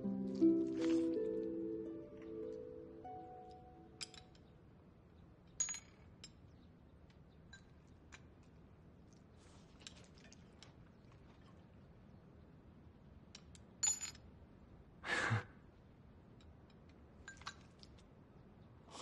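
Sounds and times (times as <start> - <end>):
short exhale: 15.0 - 15.6.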